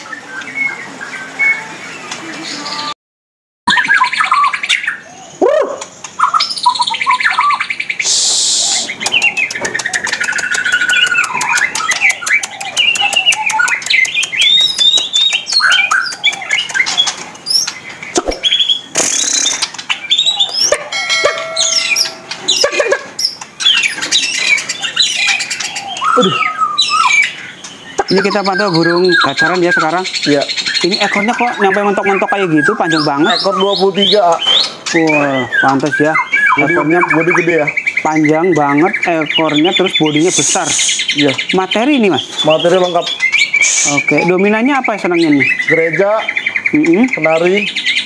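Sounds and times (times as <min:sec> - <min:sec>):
harsh hissy bird notes: 0:00.1 - 0:02.9, 0:05.3 - 0:24.4, 0:36.7 - 0:47.6
rapid rattling bird trills: 0:03.8 - 0:48.0
bird singing whistled notes: 0:06.2 - 0:48.0.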